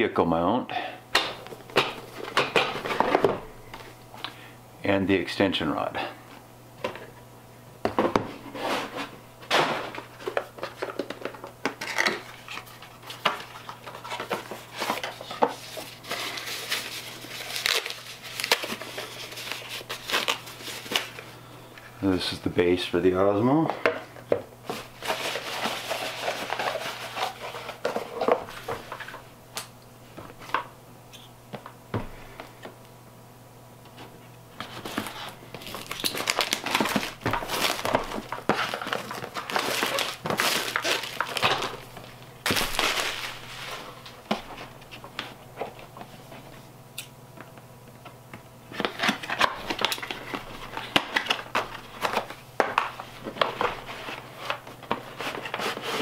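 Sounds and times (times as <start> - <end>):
plastic wrap crinkling: 11.9 - 21.3, 24.7 - 29.0, 34.7 - 45.1.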